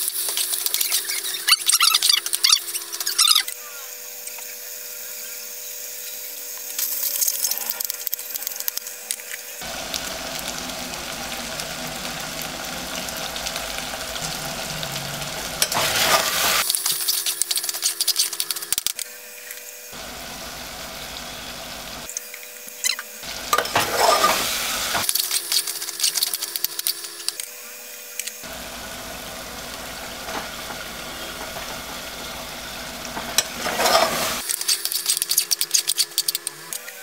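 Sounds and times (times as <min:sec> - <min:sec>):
meat and onions sizzling: 0:00.0 - 0:36.5
metal spatula scraping pot: 0:14.6 - 0:18.4, 0:23.5 - 0:26.3, 0:33.2 - 0:36.5.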